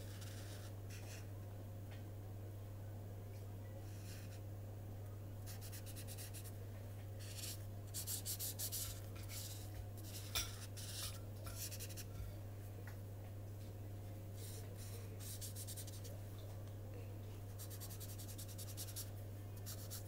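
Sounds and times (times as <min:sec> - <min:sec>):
low electrical hum: 0:00.0 - 0:20.0
marker rubbing on paper: 0:07.2 - 0:12.1, 0:14.4 - 0:16.1, 0:17.6 - 0:20.0.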